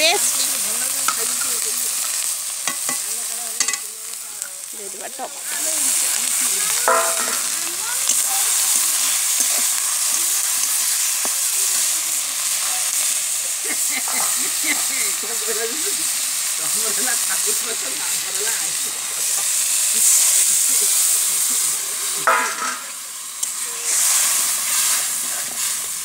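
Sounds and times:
onions sizzling in hot oil: 0:00.0 - 0:26.0
steel ladle scraping and clinking: 0:06.8 - 0:11.0.

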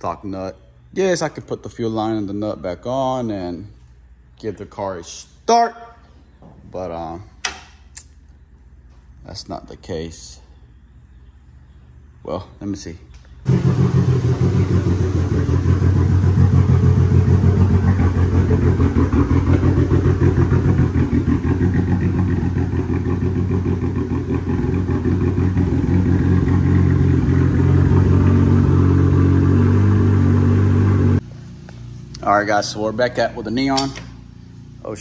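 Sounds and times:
car engine idling: 0:13.5 - 0:33.5.

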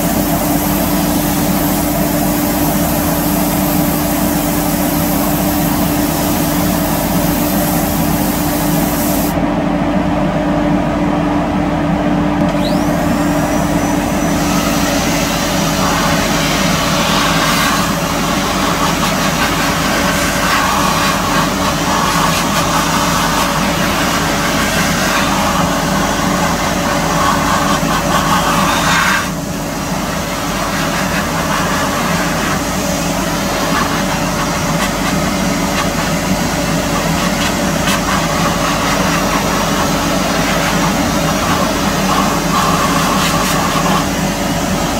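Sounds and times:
spray gun hissing: 0:00.0 - 0:09.4
spray booth equipment drone: 0:00.0 - 0:44.9.

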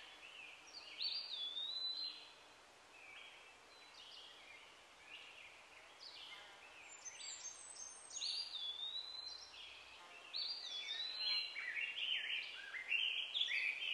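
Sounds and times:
birds singing and calling: 0:00.0 - 0:02.4, 0:03.0 - 0:13.9.

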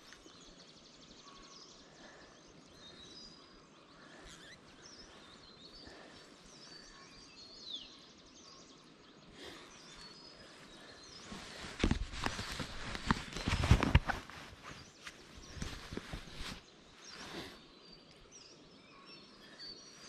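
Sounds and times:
faint outdoor ambience: 0:00.0 - 0:20.0
high bird chirps: 0:04.1 - 0:05.7.

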